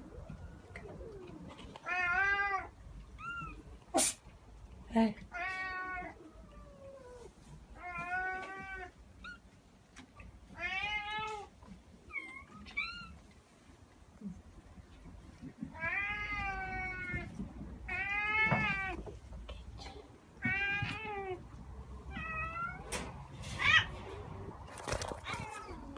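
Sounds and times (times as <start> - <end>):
cats meowing: 0.0 - 3.9, 5.3 - 9.6, 10.4 - 13.4, 15.3 - 19.2, 20.4 - 24.4, 25.1 - 25.9.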